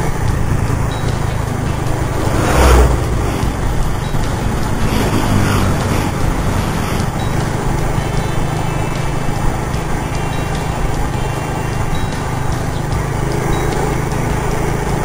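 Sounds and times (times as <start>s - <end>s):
wind rumble on microphone: 0.0s - 9.7s
scooter engine drone: 0.0s - 15.0s
vehicles rushing past: 0.0s - 15.0s.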